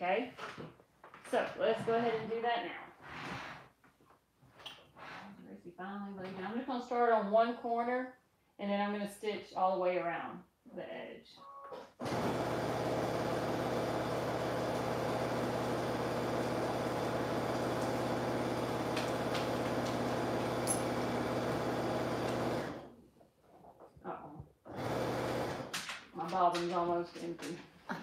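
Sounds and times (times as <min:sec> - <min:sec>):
electric sewing machine running: 0:12.0 - 0:22.9, 0:24.7 - 0:25.8.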